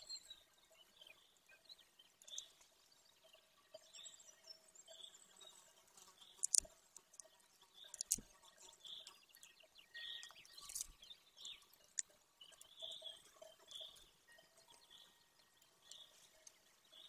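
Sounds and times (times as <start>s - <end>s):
small birds chirping: 0.0s - 17.0s
eaglet tearing prey clicks: 8.0s - 8.2s.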